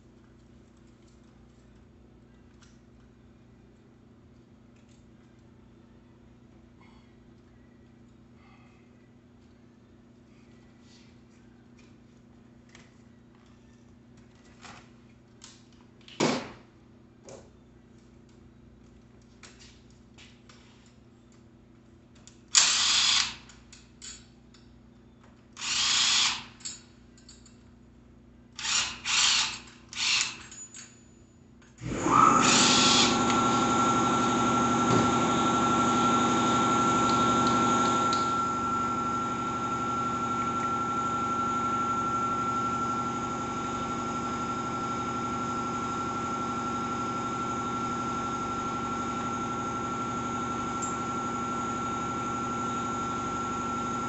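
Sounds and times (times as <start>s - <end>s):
air compressor motor whining: 31.8s - 54.0s.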